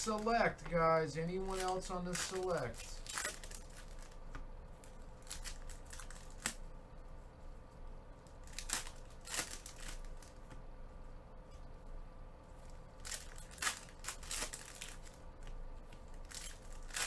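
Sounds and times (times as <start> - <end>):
foil wrappers tearing and crinkling: 0.0 - 4.2, 4.8 - 6.6, 8.4 - 10.4, 13.0 - 17.0.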